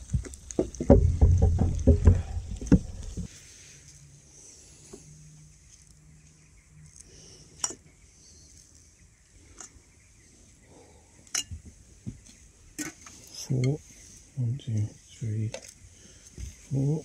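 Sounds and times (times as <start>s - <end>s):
soft knocks: 0.6s - 3.3s.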